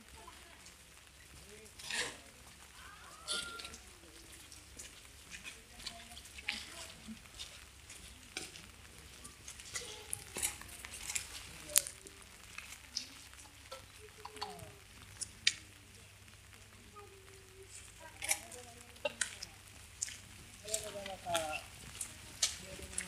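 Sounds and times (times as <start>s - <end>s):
crackling with sharp clicks: 0.0s - 23.0s.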